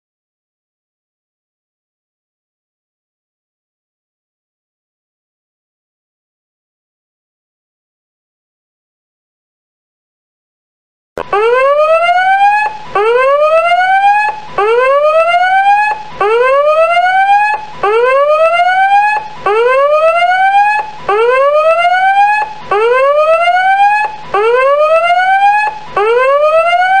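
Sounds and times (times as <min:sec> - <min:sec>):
electronic whoop alarm: 0:11.2 - 0:27.0.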